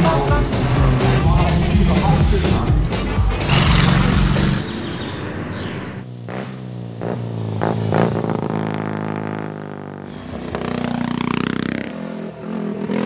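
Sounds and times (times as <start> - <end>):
racing car engine: 0.0 - 9.2
deep loud engine note: 0.4 - 6.0.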